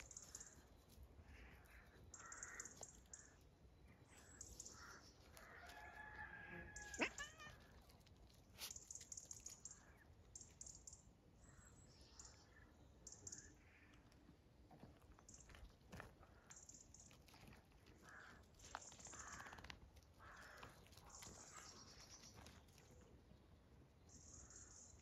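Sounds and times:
paws scuffling on gravel: 4.1 - 9.9, 14.6 - 23.2
faint animal call: 4.7 - 8.0.

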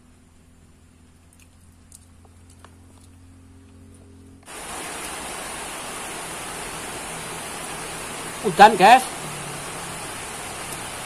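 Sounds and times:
faint eating clicks: 1.3 - 4.0
rain falling: 4.4 - 11.0.

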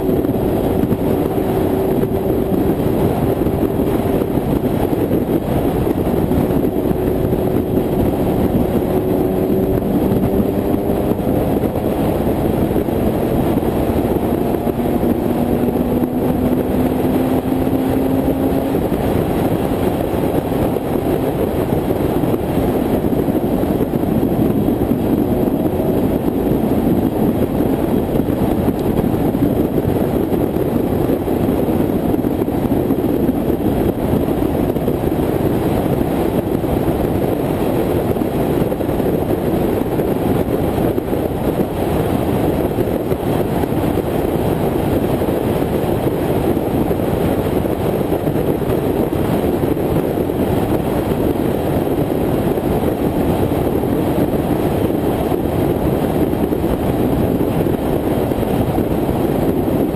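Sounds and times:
muffled car road and wind noise: 0.0 - 59.9.

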